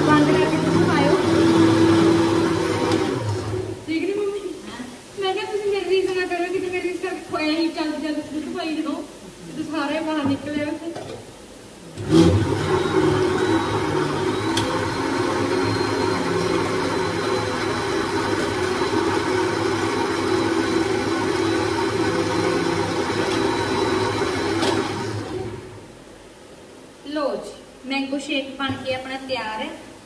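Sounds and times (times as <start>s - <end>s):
mixer grinder running: 0.0s - 3.9s, 11.9s - 25.8s.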